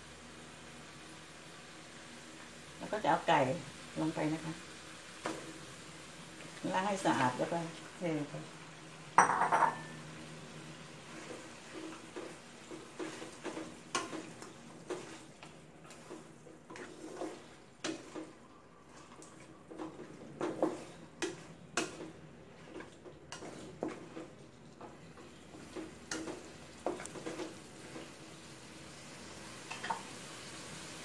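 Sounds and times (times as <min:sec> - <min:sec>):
low sizzle: 0:00.0 - 0:31.0
wooden spatula scraping metal pot: 0:11.0 - 0:28.2.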